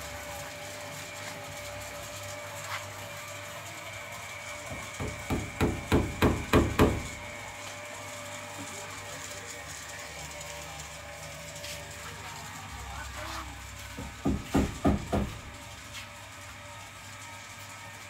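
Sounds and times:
knocks: 0:04.7 - 0:07.1, 0:14.0 - 0:15.4.

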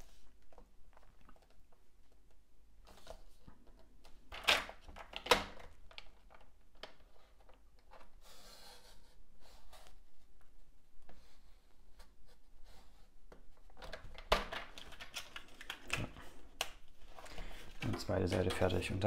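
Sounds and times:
card rustling and clicking: 0:13.6 - 0:19.0.

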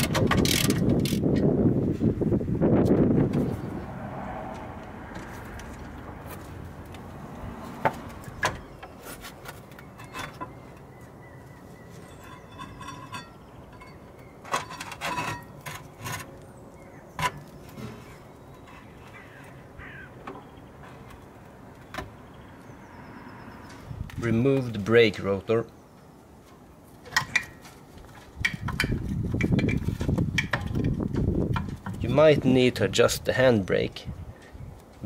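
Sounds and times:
metal clinks and knocks: 0:12.0 - 0:15.9, 0:28.4 - 0:32.0.

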